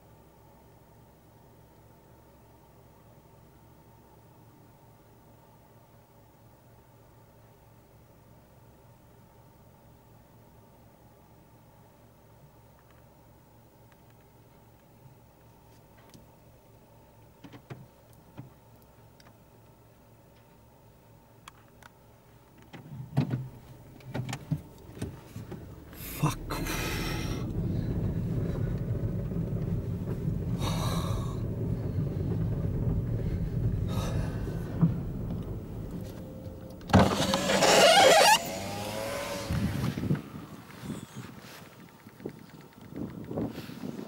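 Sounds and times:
faint low hum: 0.0 - 43.4
car rumbling on gravel: 22.9 - 42.3
rush with a rising whine: 24.8 - 41.0.

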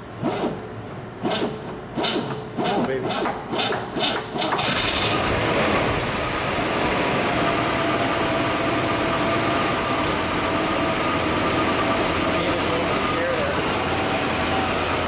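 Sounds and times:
car engine cranking and starting: 4.4 - 15.0.

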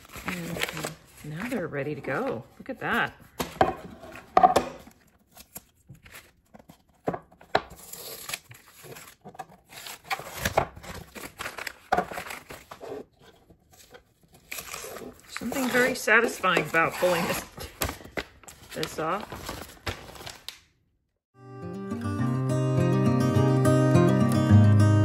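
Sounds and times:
paper crinkling: 0.0 - 2.6, 4.9 - 7.0, 7.7 - 20.7
tape tearing: 7.7 - 12.9, 14.3 - 20.6.

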